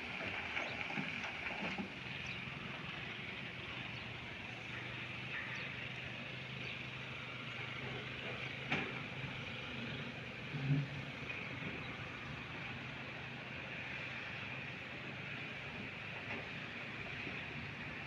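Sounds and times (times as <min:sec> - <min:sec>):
heavy machinery engine hum: 0:00.0 - 0:18.0.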